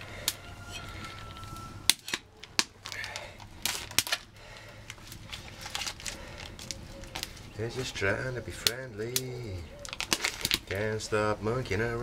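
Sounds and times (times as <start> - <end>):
wood fire crackling: 0.0 - 12.0
fire pops: 1.2 - 4.3, 8.6 - 10.9.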